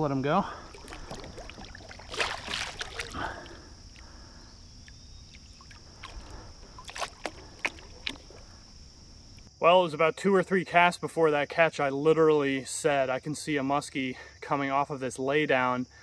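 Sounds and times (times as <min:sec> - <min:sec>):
water sloshing and splashing: 0:00.4 - 0:04.2, 0:04.8 - 0:09.5.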